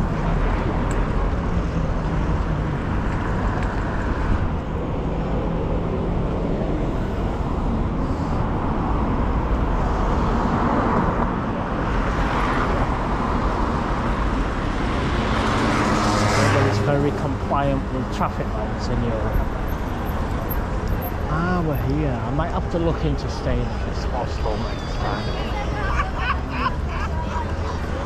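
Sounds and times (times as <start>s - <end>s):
cars passing on busy road: 0.0s - 28.0s
traffic rumble: 0.0s - 28.0s.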